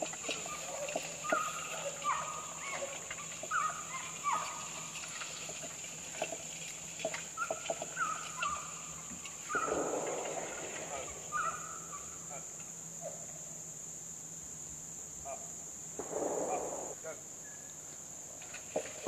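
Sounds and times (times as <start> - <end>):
birds calling in hooked notes: 0.0 - 12.4
high insect drone: 0.0 - 19.0.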